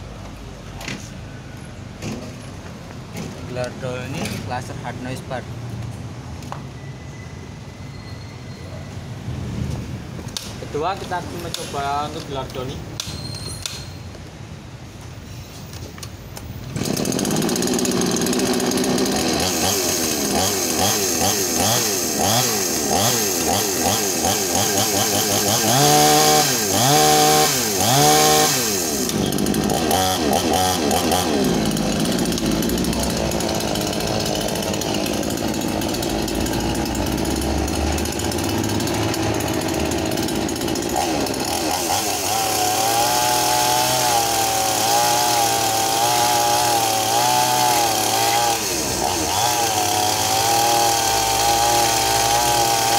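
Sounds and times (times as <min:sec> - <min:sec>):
chainsaw engine revving: 0:16.7 - 0:52.9.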